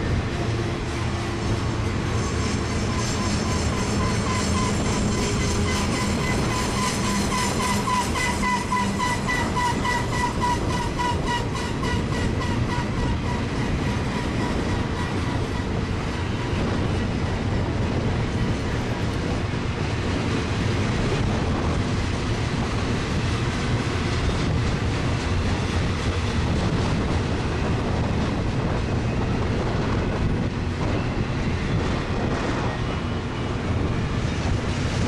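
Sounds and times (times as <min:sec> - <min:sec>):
freight train rumbling past: 0:00.0 - 0:35.0
train wheels clicking: 0:00.0 - 0:35.0
high wheel squeal: 0:00.9 - 0:17.4.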